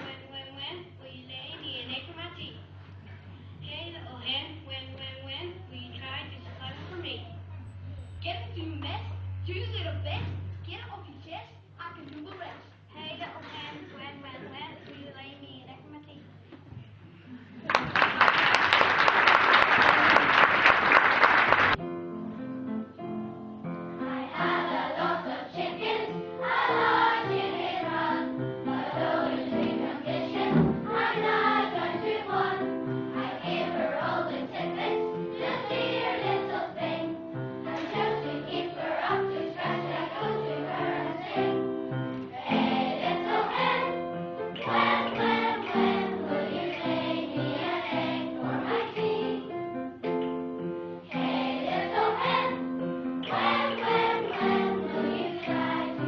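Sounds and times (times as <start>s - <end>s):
people clapping: 17.6s - 21.8s
children's choir singing: 24.0s - 49.8s, 51.0s - 56.0s.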